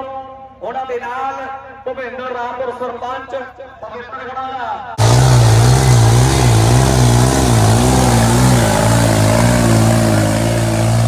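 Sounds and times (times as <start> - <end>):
tractor diesel engine under load: 5.0 - 11.0.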